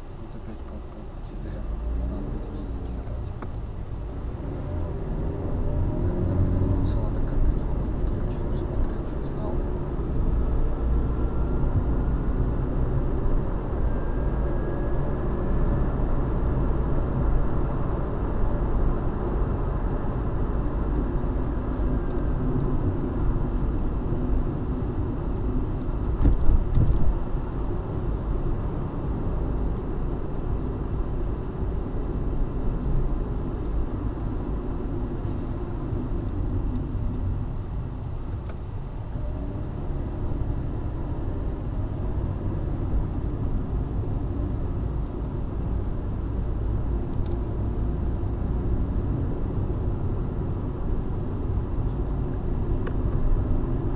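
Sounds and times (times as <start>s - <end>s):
car engine and tyre rumble: 0.0s - 53.9s
car bump: 26.1s - 27.1s.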